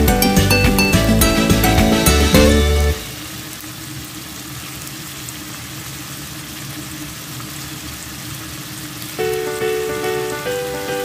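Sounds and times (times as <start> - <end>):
food sizzling in oil: 2.4 - 11.0.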